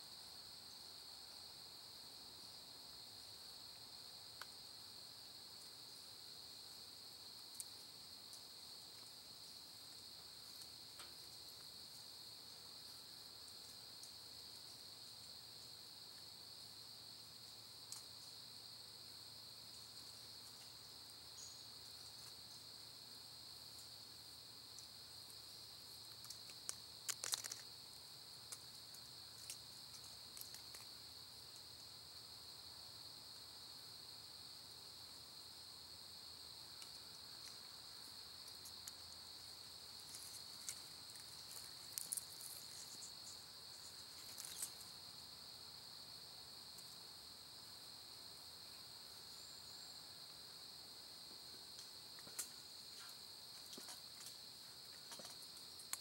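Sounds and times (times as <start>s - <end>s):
insect chorus: 0.0s - 56.0s
faint clicks: 17.9s - 18.1s, 26.1s - 27.7s.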